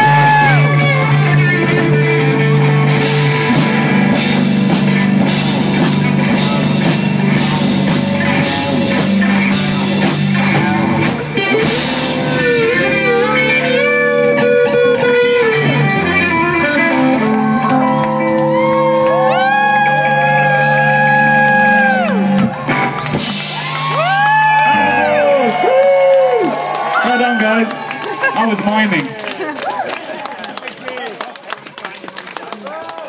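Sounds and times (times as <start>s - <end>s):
drum kit: 0.0s - 25.6s
electric guitars: 0.0s - 29.9s.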